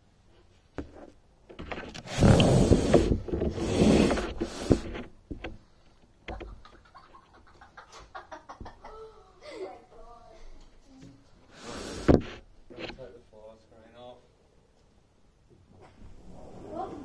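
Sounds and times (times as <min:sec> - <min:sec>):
cloth rubbing on microphone: 0:02.0 - 0:05.1, 0:15.8 - 0:17.0
light taps and knocks: 0:04.6 - 0:06.8.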